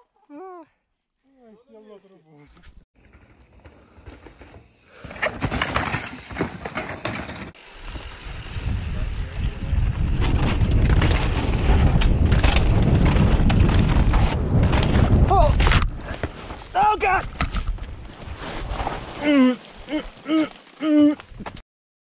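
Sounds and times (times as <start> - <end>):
bike clattering over rock: 3.0 - 7.6, 10.0 - 19.2
wind rushing over microphone: 7.8 - 18.9.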